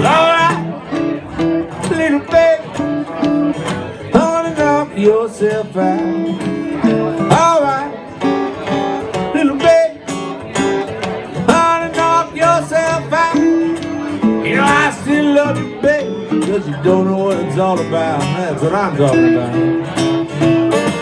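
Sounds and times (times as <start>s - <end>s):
acoustic guitars playing blues: 0.0s - 21.0s.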